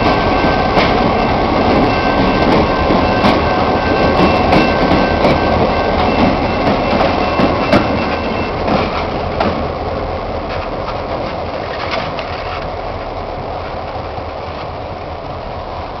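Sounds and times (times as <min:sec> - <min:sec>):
train wheels clicking on rail: 0:00.0 - 0:14.8
diesel locomotive engines droning: 0:00.0 - 0:16.0.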